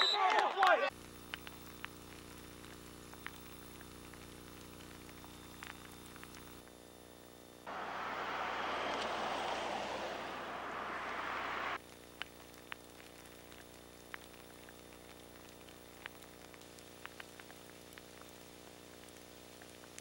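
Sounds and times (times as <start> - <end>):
ice pellets ticking: 1.0 - 6.7, 11.8 - 20.0
low hum: 7.7 - 11.8.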